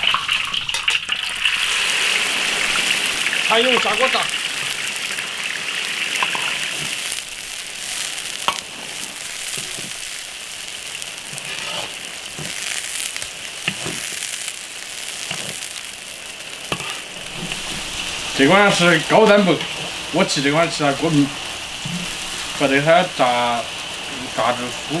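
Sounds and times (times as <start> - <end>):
deep-frying sizzle: 0.0 - 25.0.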